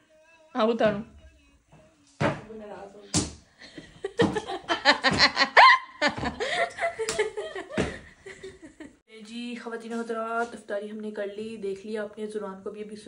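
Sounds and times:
footsteps knocking on wooden floor: 0.8 - 1.1, 1.7 - 6.5, 7.7 - 8.1
laughter: 3.6 - 9.0.

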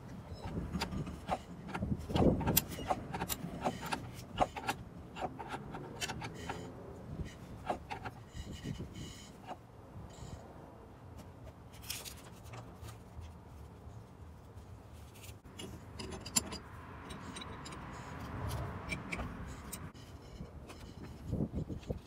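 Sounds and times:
wrenches clinking on metal fitting: 0.3 - 9.6, 15.5 - 22.0.

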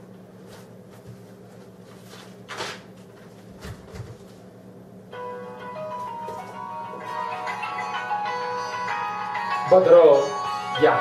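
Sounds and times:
steady low hum: 0.0 - 11.0
paper rustling: 1.8 - 4.4
music: 5.1 - 11.0.

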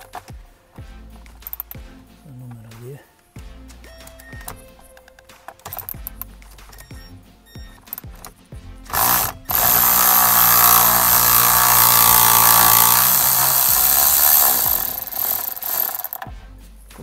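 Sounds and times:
electric ratchet motor whine: 8.9 - 16.3.

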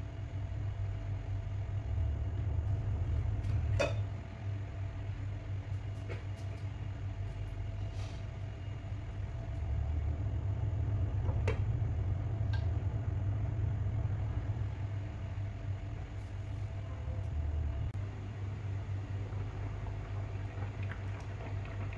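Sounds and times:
electric hotplate hum: 0.0 - 21.9.

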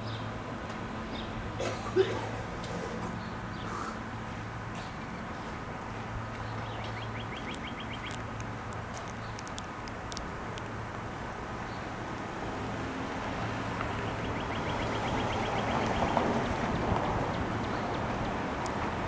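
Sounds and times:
sharp ticks: 6.8 - 11.0.

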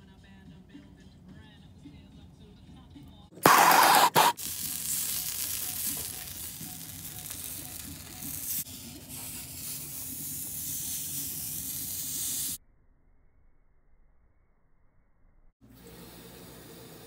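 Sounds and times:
hot pipe hissing and sizzling: 3.4 - 12.6.

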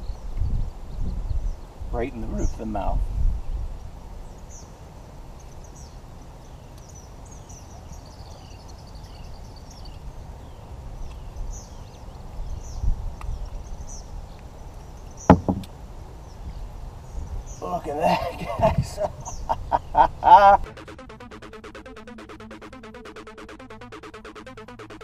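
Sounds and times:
small birds chirping: 0.0 - 20.3
sharp knock: 15.3 - 15.7.

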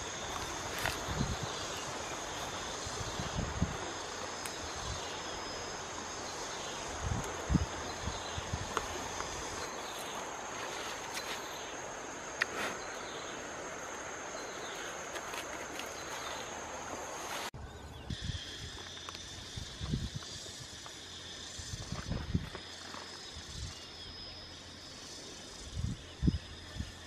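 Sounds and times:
hands rustling soil and leaves: 0.0 - 4.8, 7.0 - 11.8, 14.5 - 17.5
insects trilling: 0.0 - 27.0.

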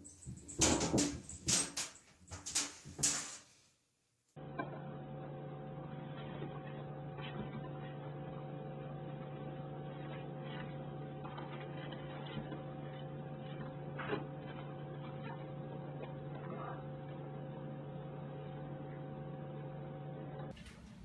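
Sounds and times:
electrical hum: 4.4 - 21.0.

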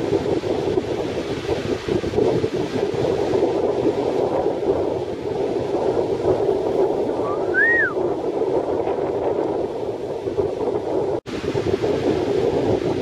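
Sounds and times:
waves breaking on shore: 0.0 - 13.0
wind buffeting microphone: 0.0 - 13.0
whistle-like tone: 7.3 - 8.0.

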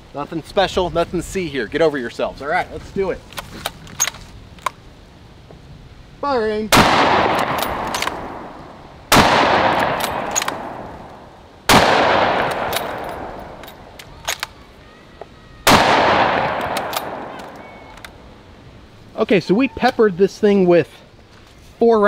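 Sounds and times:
rifle shots echoing: 6.7 - 14.5, 15.7 - 18.1.

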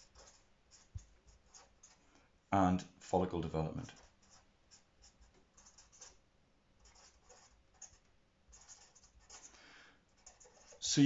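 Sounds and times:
marker scratching on paper: 0.0 - 2.1, 3.7 - 6.2, 6.8 - 11.0.

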